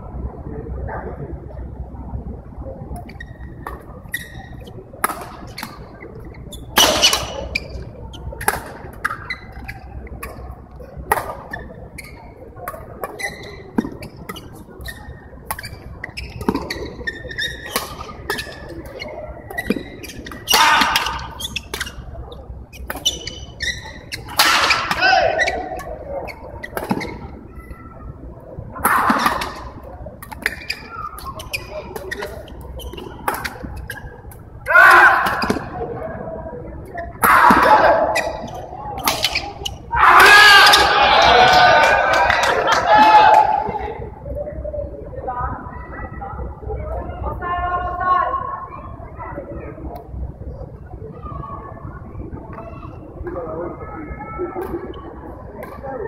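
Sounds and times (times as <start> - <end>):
shoes squeaking on court: 3.0 - 10.6, 11.2 - 27.8, 29.0 - 34.5, 36.8 - 39.9
racket hitting shuttlecock: 6.8 - 7.4, 24.1 - 25.9, 37.2 - 39.7.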